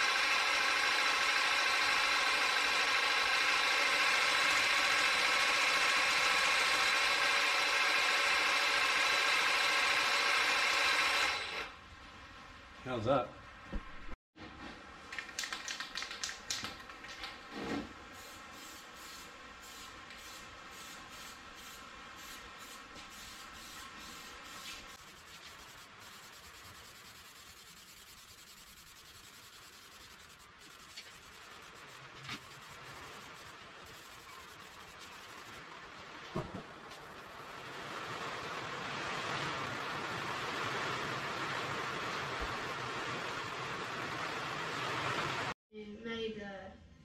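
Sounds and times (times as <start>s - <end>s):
aerosol spray can hissing: 18.2s - 35.6s.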